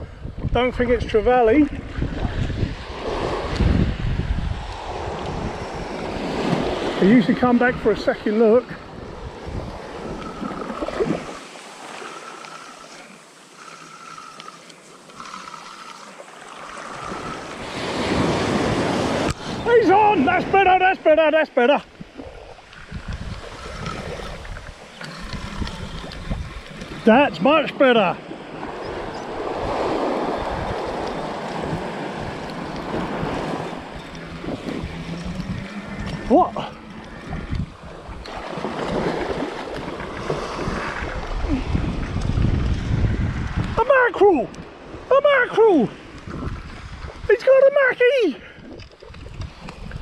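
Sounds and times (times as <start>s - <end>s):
wind buffeting the microphone: 0.0s - 11.4s, 21.9s - 27.5s, 28.2s - 45.1s, 45.8s - 47.4s, 48.4s - 50.0s
small waves washing on beach: 0.6s - 50.0s.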